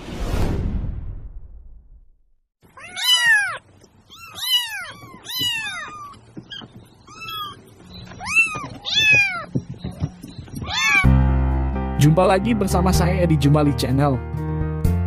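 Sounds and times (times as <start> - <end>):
kitten meowing: 2.7 - 9.6, 10.5 - 11.1.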